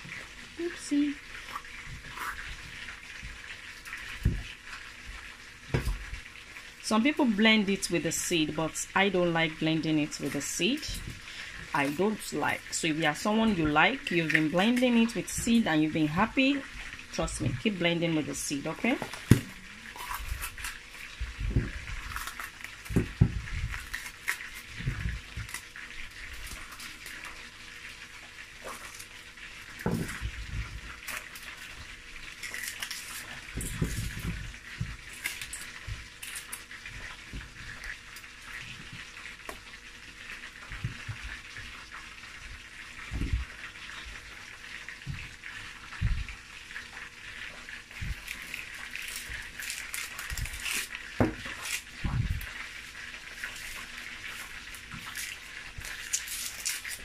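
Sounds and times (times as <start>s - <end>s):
fish sizzling in oil: 0.0s - 57.0s
hands tearing peppers: 19.1s - 21.1s, 21.8s - 27.4s, 31.0s - 34.2s, 35.0s - 36.7s, 48.1s - 52.6s, 53.3s - 57.0s.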